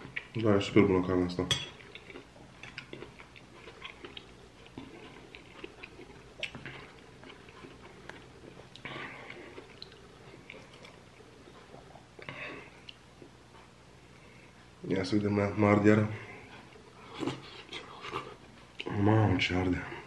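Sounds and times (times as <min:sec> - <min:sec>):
close chewing with mouth clicks: 0:00.0 - 0:00.4, 0:01.8 - 0:13.8, 0:16.6 - 0:19.0.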